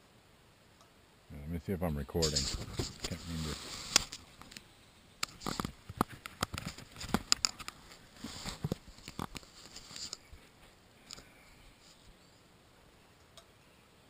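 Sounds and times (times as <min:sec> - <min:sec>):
clothing rustling: 0:06.5 - 0:10.8.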